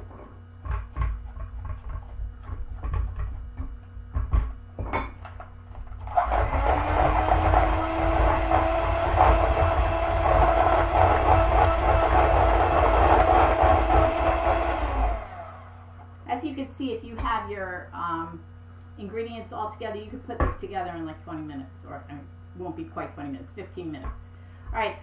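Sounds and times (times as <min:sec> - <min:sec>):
electric hand mixer running: 0:06.0 - 0:16.0.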